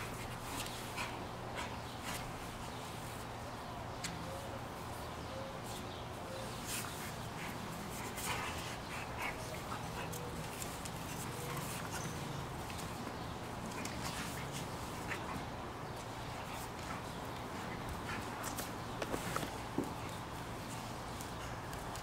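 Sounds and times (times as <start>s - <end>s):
dogs scuffling on concrete: 5.6s - 22.0s.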